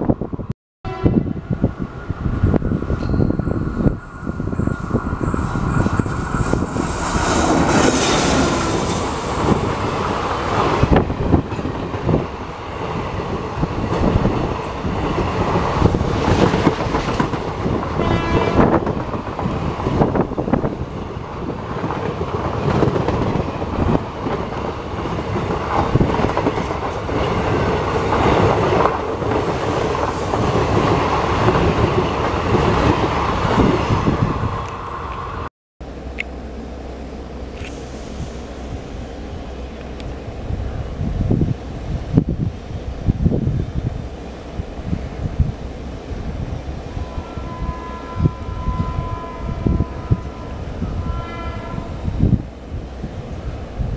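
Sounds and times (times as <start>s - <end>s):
passing train rumble: 0.0s - 53.9s
train horn: 0.9s - 1.6s, 18.0s - 19.0s, 46.8s - 52.3s.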